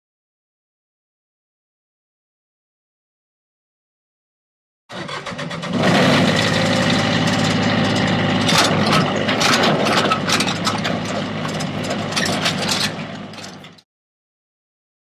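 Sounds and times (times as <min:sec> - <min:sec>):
excavator engine running: 0:04.9 - 0:13.8
sharp metal clanks and knocks: 0:05.7 - 0:13.8.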